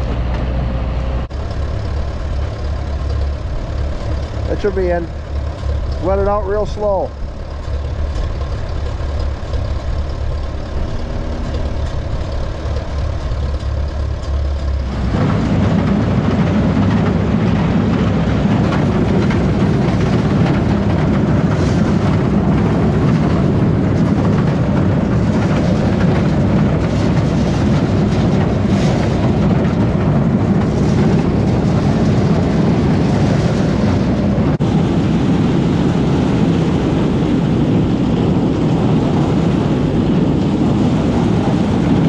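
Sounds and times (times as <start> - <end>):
tractor engine humming: 0.0 - 42.0
corn cobs rattling on conveyor: 1.3 - 34.1.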